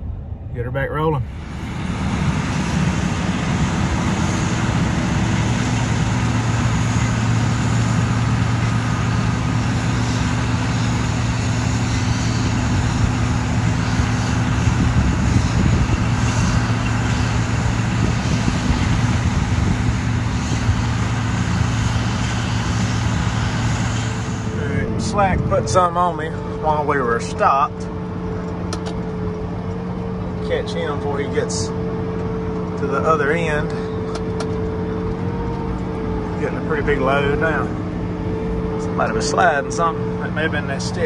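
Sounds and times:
diesel engine drone: 0.0s - 41.0s.

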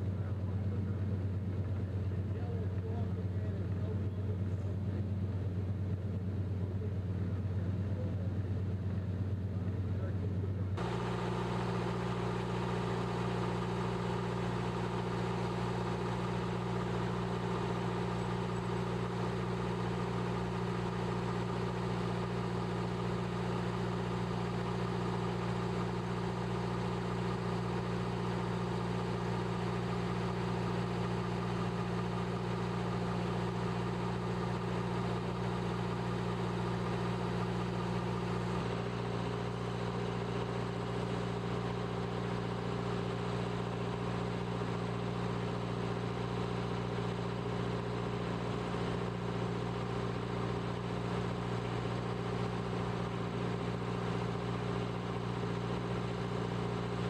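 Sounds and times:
mechanical hum: 10.8s - 47.6s.

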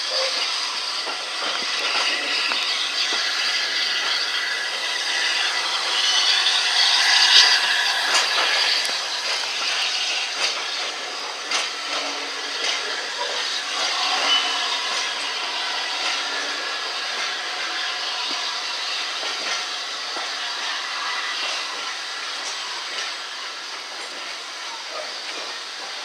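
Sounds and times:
steam train hiss and rolling: 0.0s - 26.0s
wheels clicking over rail joints: 0.0s - 26.0s.

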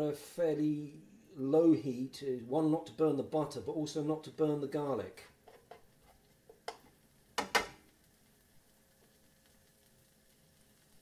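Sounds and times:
spatula knocking against pan: 6.5s - 7.8s.

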